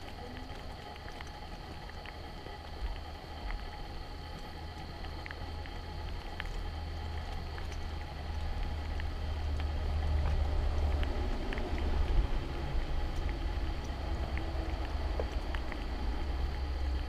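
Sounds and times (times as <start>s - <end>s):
faint steady high tone: 0.0s - 0.9s
light rain ticks: 0.0s - 17.0s
wind rumble on microphone: 0.0s - 17.0s.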